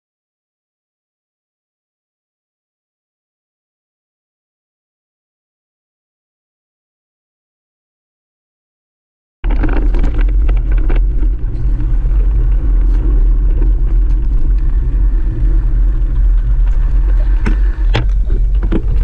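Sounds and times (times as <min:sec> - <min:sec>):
bike rattling: 0:09.4 - 0:19.0
wind buffeting microphone: 0:09.4 - 0:19.0.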